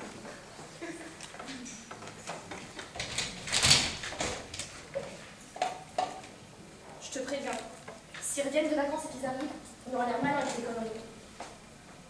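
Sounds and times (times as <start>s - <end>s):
door opening with scraping rush: 2.8s - 4.8s.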